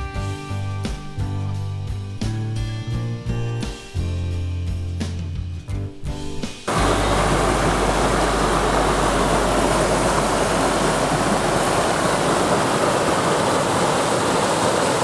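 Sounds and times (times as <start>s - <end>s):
low rumble: 6.7s - 13.0s
stream rushing over rocks: 6.7s - 15.0s.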